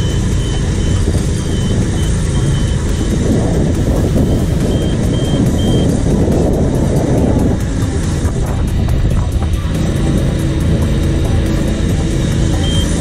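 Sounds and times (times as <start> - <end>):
high warning beeps: 0.0 - 6.0, 12.4 - 13.0
diesel engines running under load: 0.0 - 13.0.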